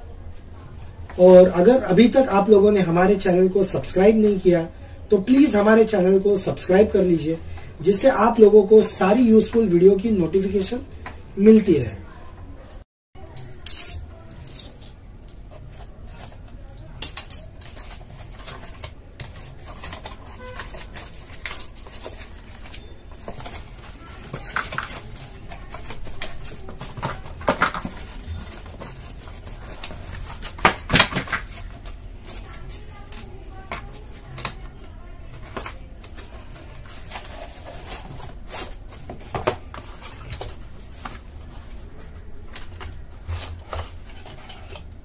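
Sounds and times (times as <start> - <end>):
rustling and scraping: 14.2 - 45.0.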